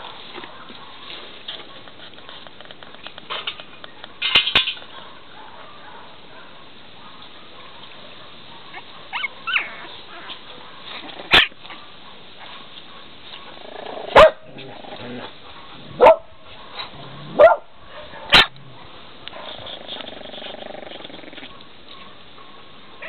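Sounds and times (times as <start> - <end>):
puppies yipping and squeaking: 8.6 - 14.3, 19.4 - 23.0.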